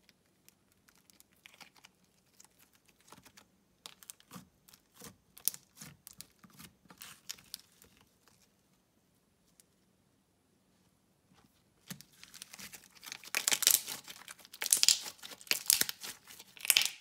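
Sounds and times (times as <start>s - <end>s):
sticky clicks and crackles: 0.0s - 6.2s, 12.0s - 17.0s
slime kneaded by hand: 0.4s - 8.5s, 11.3s - 17.0s.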